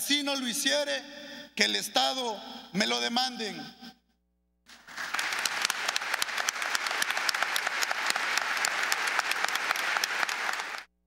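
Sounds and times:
audience applauding: 0:04.7 - 0:10.9.

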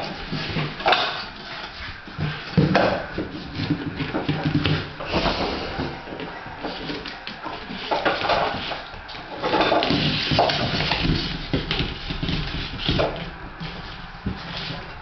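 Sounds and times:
basket scraping on tile floor: 0:00.0 - 0:15.0.

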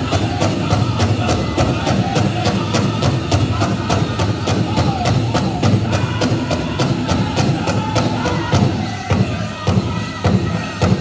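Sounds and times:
big drum beat: 0:00.0 - 0:11.0
drum group singing: 0:00.0 - 0:11.0.

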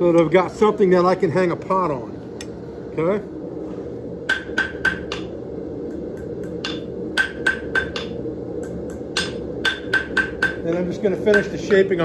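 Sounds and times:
low hum: 0:00.0 - 0:12.0
hammer striking steel on anvil: 0:04.3 - 0:05.3, 0:06.4 - 0:11.9.

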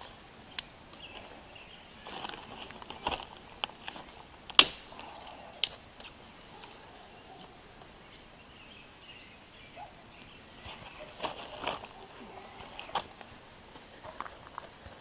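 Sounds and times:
sticks rustling: 0:00.0 - 0:08.0, 0:10.6 - 0:15.0
dry wood snapping: 0:02.2 - 0:06.7.

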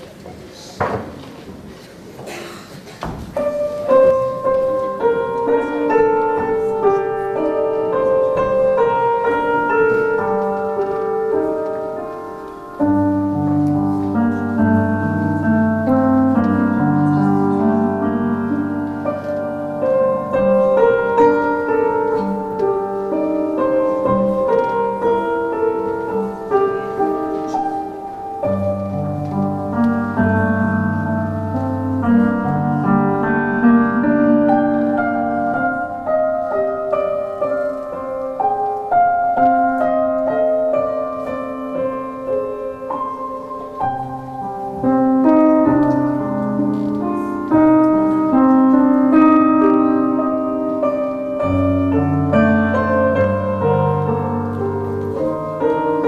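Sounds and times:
piano music: 0:03.1 - 0:56.0.

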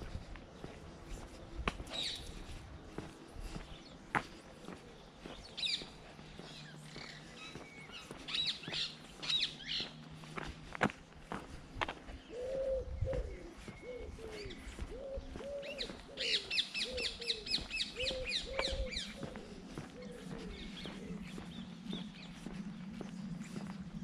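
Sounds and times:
bird cooing low notes: 0:12.2 - 0:23.7.

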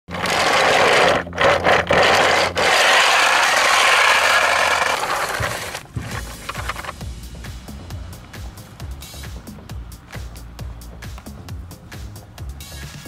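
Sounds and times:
toy truck wheels rattling on asphalt: 0:00.1 - 0:07.0.

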